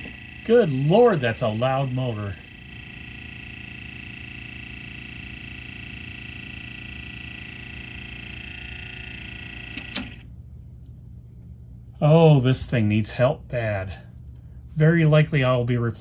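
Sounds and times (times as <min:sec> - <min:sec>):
cassette deck motor whine: 0:00.0 - 0:10.4
clicks: 0:09.7 - 0:10.2.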